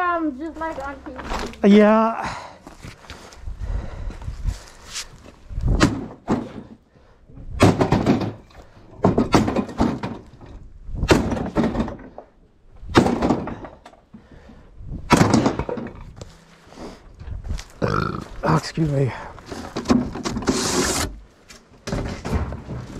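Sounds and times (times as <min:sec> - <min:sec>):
sledgehammer strikes: 0:05.7 - 0:06.7, 0:07.5 - 0:10.3, 0:11.0 - 0:12.0, 0:12.9 - 0:13.8, 0:15.0 - 0:16.0
debris breaking: 0:07.6 - 0:12.2, 0:12.9 - 0:13.8, 0:15.1 - 0:16.2.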